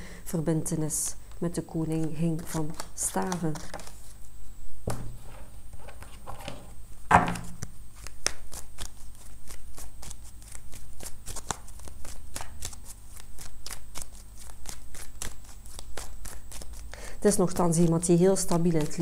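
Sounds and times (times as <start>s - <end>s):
cards shuffled by hand: 2.4s - 4.2s, 7.3s - 16.9s
card set down on table: 4.9s - 5.2s, 5.9s - 7.6s.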